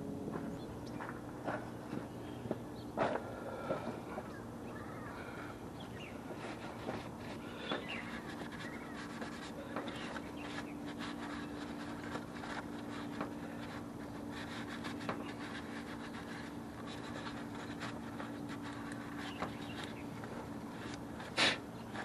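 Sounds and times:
low hum: 0:00.0 - 0:22.0
paper towel wiping: 0:06.5 - 0:22.0.

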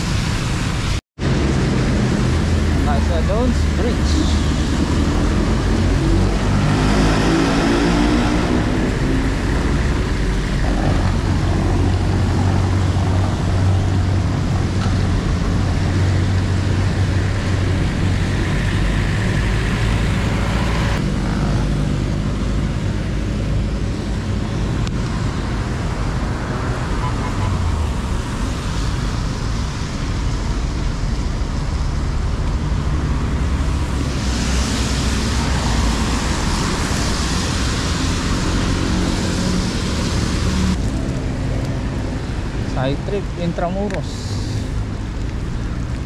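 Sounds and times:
traffic rumble: 0:00.0 - 0:46.0
engine speeding up: 0:01.2 - 0:23.0, 0:25.8 - 0:43.1.

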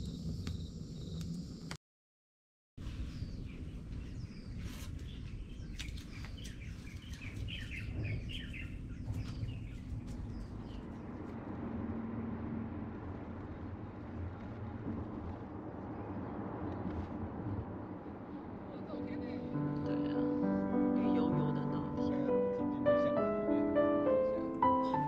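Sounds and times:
birds chirping: 0:02.9 - 0:11.3, 0:18.8 - 0:25.0.

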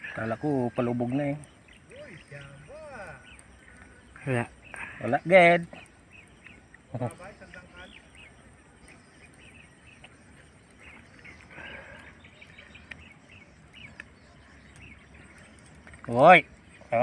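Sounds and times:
bird chirps: 0:00.0 - 0:17.0.

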